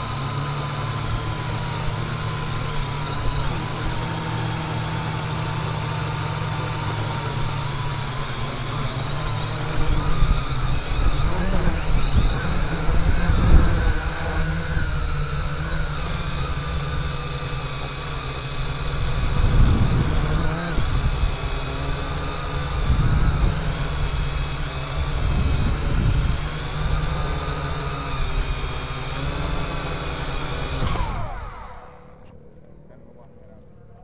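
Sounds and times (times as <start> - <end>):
drone motors whining: 0.0 - 34.0
wind rumble on microphone: 7.4 - 17.2, 18.6 - 28.5.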